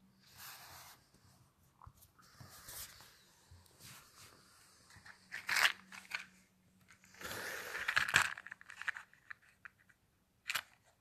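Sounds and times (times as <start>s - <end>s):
rustling and scraping on microphone: 0.2s - 6.3s.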